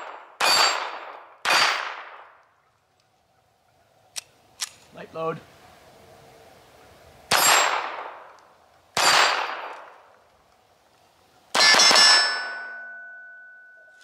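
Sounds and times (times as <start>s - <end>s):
steel plate target ringing: 0.0s - 1.8s, 11.5s - 14.0s
handgun shots with echo: 0.0s - 2.3s, 9.0s - 9.9s, 11.5s - 12.6s.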